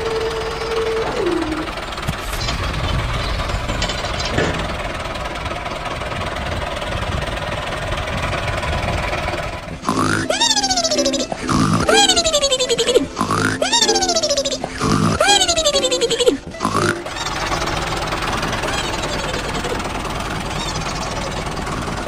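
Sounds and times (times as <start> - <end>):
tractor engine chugging: 0.0 - 22.0.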